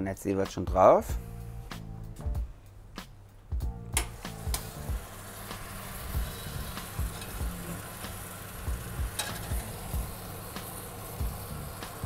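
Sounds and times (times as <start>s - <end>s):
dull low thumps: 3.6s - 4.0s
mushrooms sizzling in a pan: 4.1s - 12.0s.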